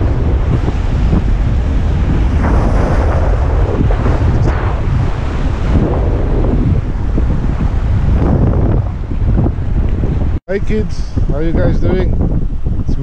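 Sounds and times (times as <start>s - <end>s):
surf breaking on rocks: 0.0s - 9.5s
wind buffeting microphone: 0.0s - 13.0s.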